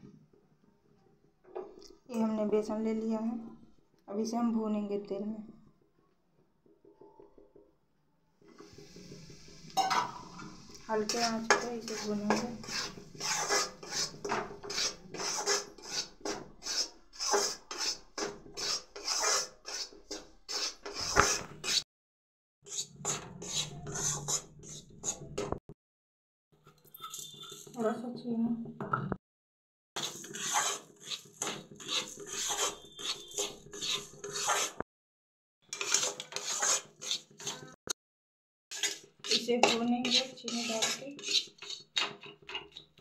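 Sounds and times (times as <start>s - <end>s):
metal spatula scraping pan: 8.5s - 21.8s, 22.7s - 25.6s, 30.0s - 34.8s, 35.7s - 37.8s, 38.7s - 42.9s.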